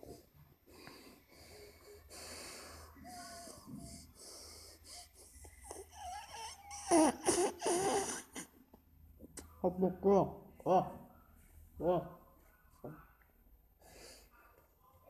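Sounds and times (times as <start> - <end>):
wheezy nose breathing: 0.0 - 8.5, 13.8 - 14.4.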